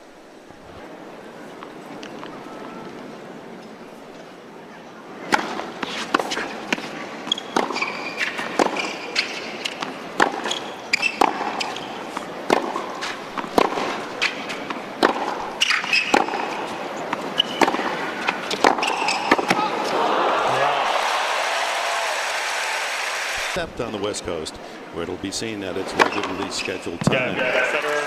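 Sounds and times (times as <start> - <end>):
tennis ball bouncing on court: 5.3 - 19.6
tennis ball struck by rackets: 5.3 - 20.0
sneakers squeaking on court: 5.9 - 19.6.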